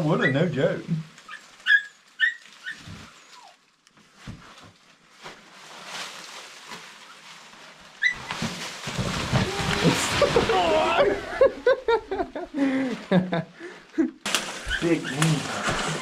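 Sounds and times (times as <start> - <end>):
footsteps over dry leaves: 1.2 - 11.0, 14.3 - 16.0.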